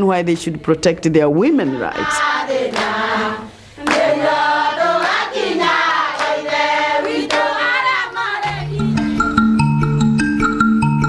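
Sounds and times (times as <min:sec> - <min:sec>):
women singing together: 0:01.4 - 0:09.0
hand claps: 0:02.7 - 0:03.0, 0:03.8 - 0:04.3, 0:04.9 - 0:08.0
instrumental music with mallet percussion: 0:08.4 - 0:11.0.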